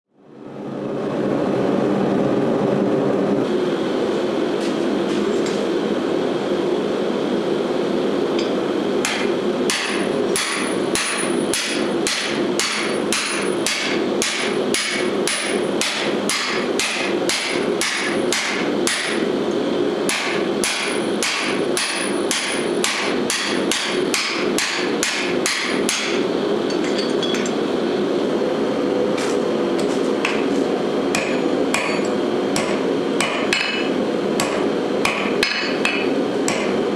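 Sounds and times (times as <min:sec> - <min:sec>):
forge roaring: 0:00.3 - 0:04.2
hammer ringing on hot steel: 0:08.4 - 0:19.3, 0:20.1 - 0:27.6, 0:31.1 - 0:36.8.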